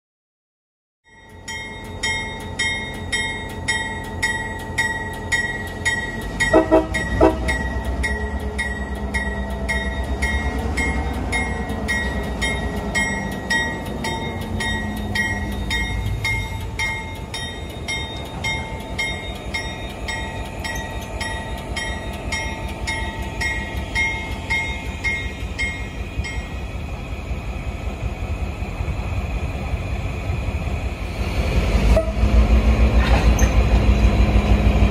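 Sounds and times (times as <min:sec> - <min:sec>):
crossing bell ringing: 0:01.0 - 0:27.0
diesel locomotive rumble: 0:01.2 - 0:34.9
locomotive horn blasts: 0:06.5 - 0:07.6, 0:31.9 - 0:32.4.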